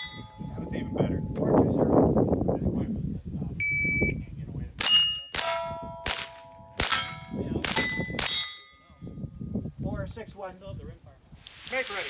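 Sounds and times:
steel target plates ringing: 0.0 - 0.7, 4.8 - 8.9
shot timer beep: 3.6 - 4.2
rifle shots: 4.8 - 8.4.

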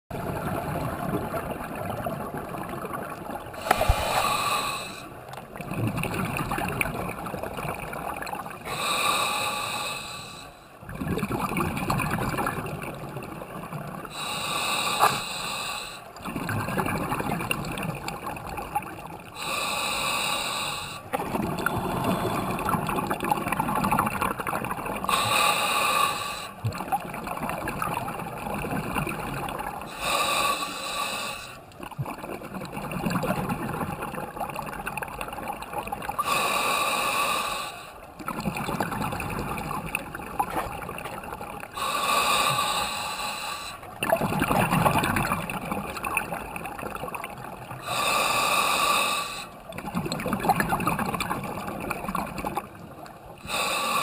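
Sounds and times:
bubbling exhale: 3.5 - 7.0, 19.4 - 27.1, 27.7 - 31.6, 36.1 - 52.6, 53.4 - 54.0
regulator hissing inhale: 3.6 - 5.1, 8.7 - 10.7, 14.1 - 16.1, 19.4 - 22.9, 25.1 - 26.6, 29.9 - 31.6, 36.2 - 38.0, 41.8 - 43.9, 47.8 - 49.6, 53.4 - 54.0.

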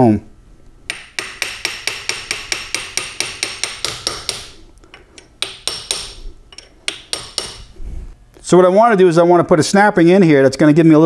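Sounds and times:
hammer tapping metal punch: 0.9 - 7.8.

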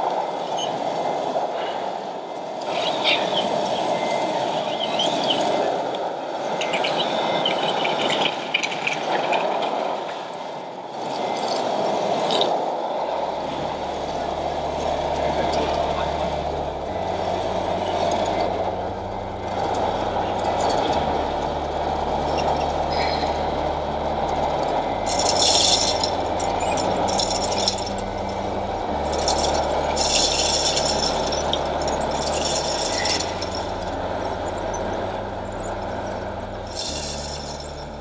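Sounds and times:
electronic diesel engine sound: 0.0 - 38.0.

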